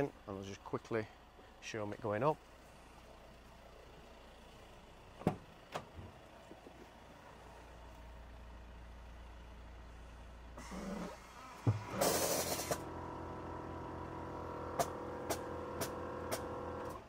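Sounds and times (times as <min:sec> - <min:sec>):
air pump humming: 0:10.6 - 0:12.9
air hiss: 0:11.9 - 0:12.8.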